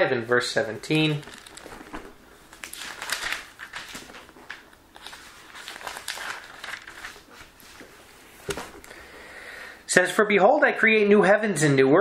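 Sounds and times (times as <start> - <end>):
paper pages rustling: 0.6 - 9.0.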